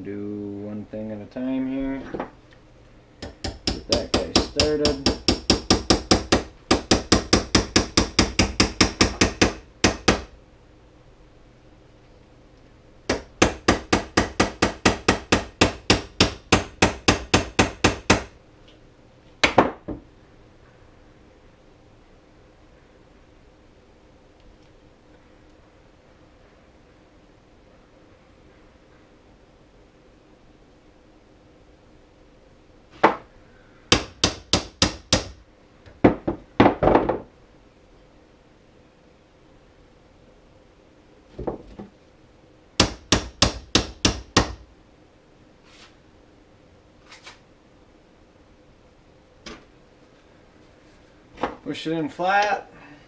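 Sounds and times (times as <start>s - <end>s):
hammer knocking on metal: 3.2s - 10.3s.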